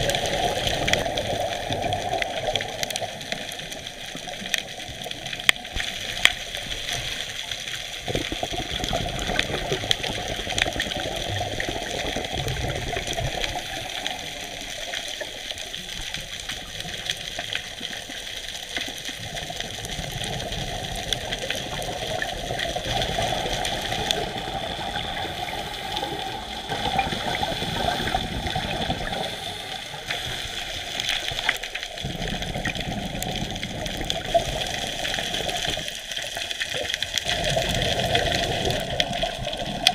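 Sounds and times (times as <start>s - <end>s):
exhaled bubbles: 0.0s - 39.9s
underwater rushing hiss: 19.2s - 39.9s.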